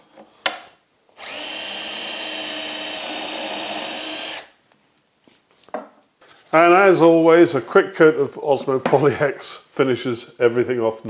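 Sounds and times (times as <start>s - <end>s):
cordless drill running: 1.2s - 4.6s.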